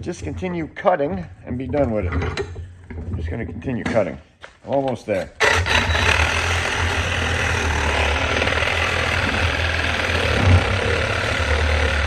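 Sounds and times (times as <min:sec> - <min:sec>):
reciprocating saw cutting metal: 0:05.4 - 0:12.0.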